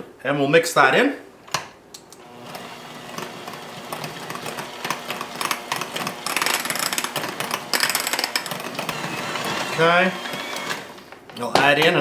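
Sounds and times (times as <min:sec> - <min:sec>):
electric hand mixer running: 0:02.2 - 0:11.1.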